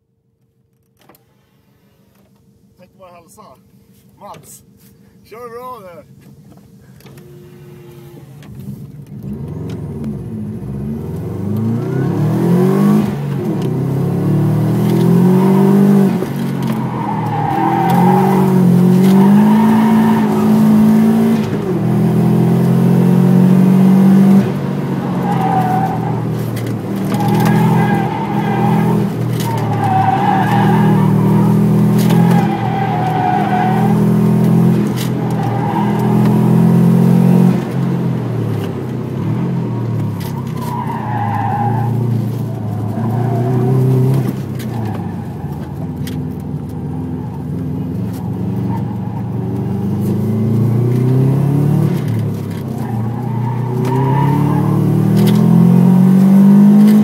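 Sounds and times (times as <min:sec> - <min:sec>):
car engine accelerating: 0:06.9 - 0:57.0
tyre squeals: 0:16.4 - 0:20.9, 0:25.0 - 0:36.7, 0:39.8 - 0:49.7.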